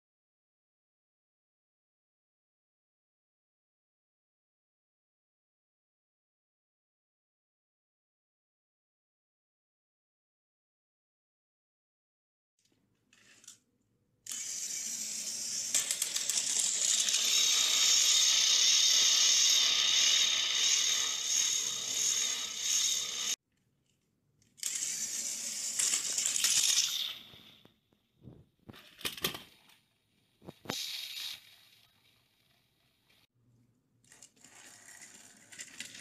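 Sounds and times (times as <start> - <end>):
toy train motors whirring: 13.1 - 13.6, 14.2 - 23.4, 24.5 - 27.7, 30.4 - 31.8, 34.0 - 36.0
toy train tipping off track: 14.2 - 23.4, 24.6 - 27.6, 30.5 - 31.7, 34.1 - 36.0.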